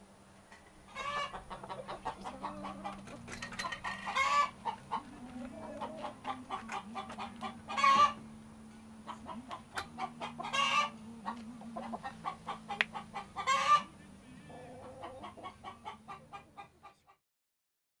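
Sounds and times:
chickens clucking: 0:00.5 - 0:17.2
chicken squawk: 0:00.9 - 0:03.1, 0:03.8 - 0:08.2, 0:09.1 - 0:11.0, 0:11.8 - 0:13.9, 0:14.5 - 0:17.2.

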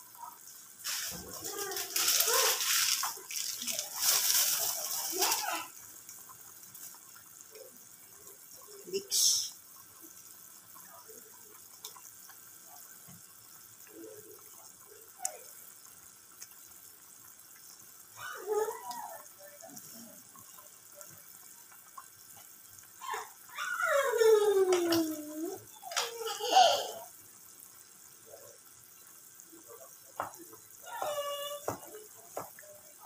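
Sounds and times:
pot of noodles bubbling: 0:00.0 - 0:33.0.

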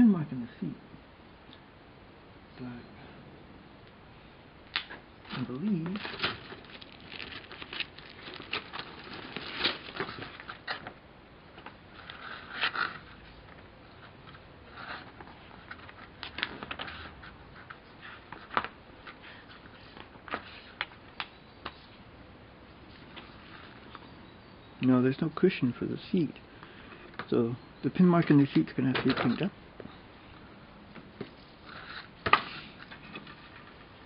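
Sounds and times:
plastic bags crinkling: 0:05.3 - 0:10.8.

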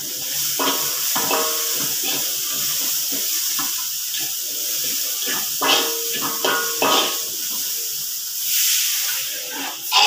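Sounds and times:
food sizzling in a wok: 0:00.0 - 0:10.0
metal spatula scraping pan: 0:00.2 - 0:07.8.

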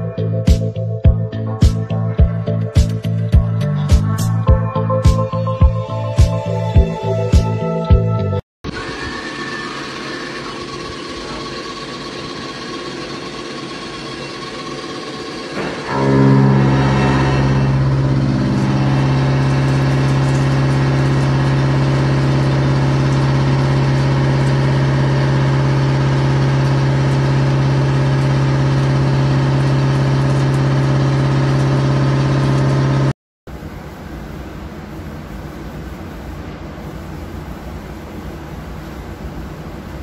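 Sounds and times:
milling machine hum: 0:08.8 - 0:33.1.

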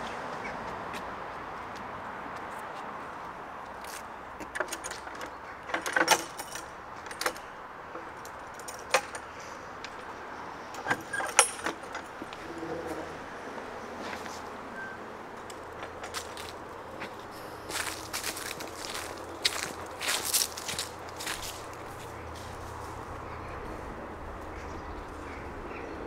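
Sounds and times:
sharp metallic clicks and jingles: 0:04.4 - 0:12.3.

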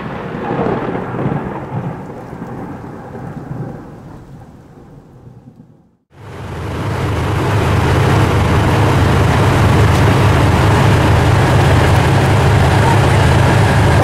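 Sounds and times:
rain hiss: 0:00.0 - 0:14.0
thunder rumble: 0:00.0 - 0:14.0
tank engine rumbling: 0:06.2 - 0:14.0.

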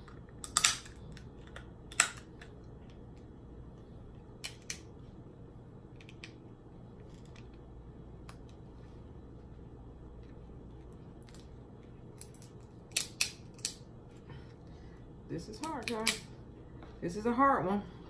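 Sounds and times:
crab shell cracking: 0:00.2 - 0:02.6, 0:12.1 - 0:13.8.

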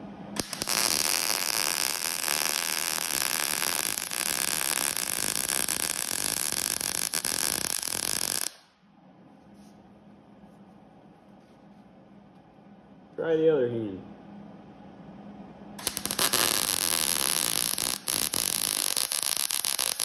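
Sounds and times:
welder arc crackling: 0:00.4 - 0:08.7, 0:15.8 - 0:20.0.

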